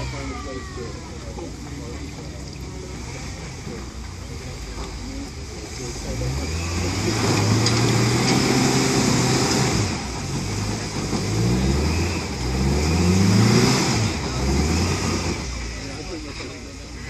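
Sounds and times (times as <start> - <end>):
truck engine revving hard: 5.5 - 16.3.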